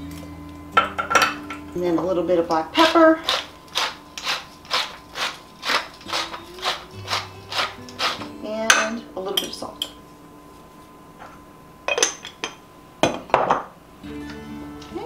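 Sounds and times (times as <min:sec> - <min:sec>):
pepper mill grinding: 0:02.8 - 0:08.4.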